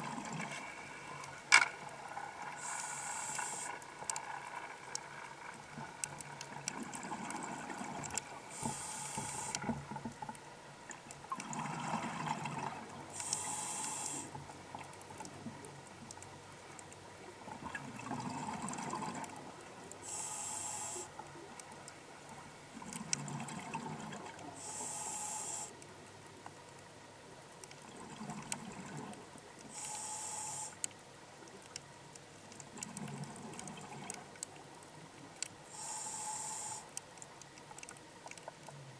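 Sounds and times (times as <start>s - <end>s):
hissing regulator inhale: 2.6s - 3.8s, 8.5s - 9.7s, 13.1s - 14.3s, 20.0s - 21.1s, 24.6s - 25.8s, 29.7s - 30.8s, 35.7s - 36.9s.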